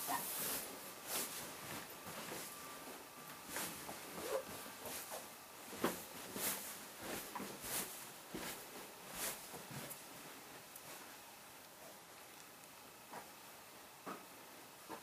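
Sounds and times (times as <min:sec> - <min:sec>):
footsteps down stairs: 0:00.4 - 0:10.0.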